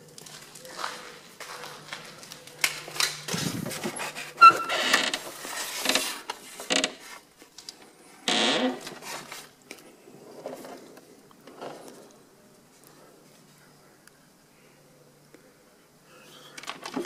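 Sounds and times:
door creaking and scraping: 0:03.3 - 0:07.1, 0:08.3 - 0:09.2.

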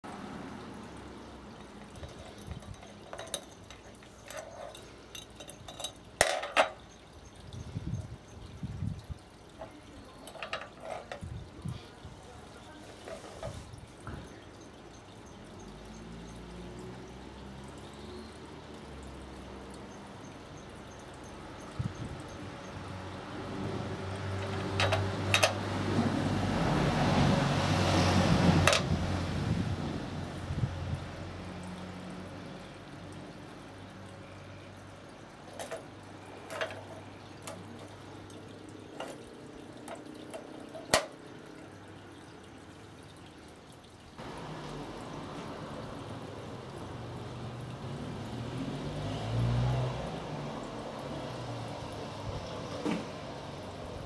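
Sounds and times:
vehicle engine hum and road noise: 0:00.0 - 0:41.1, 0:44.2 - 0:54.0
can opener clinking on tins: 0:01.6 - 0:07.0
metal clanks: 0:01.6 - 0:07.0, 0:10.2 - 0:11.3.

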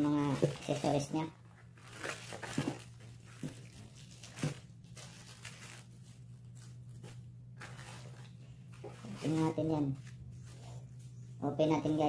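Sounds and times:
plastic and cardboard rustling: 0:00.0 - 0:11.3.

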